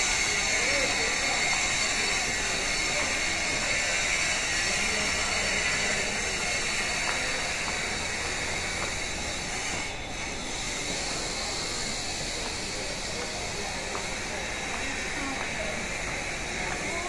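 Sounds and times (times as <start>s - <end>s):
railway station hiss: 0.0s - 17.0s
footsteps on concrete stairs: 5.6s - 10.1s, 10.8s - 17.0s.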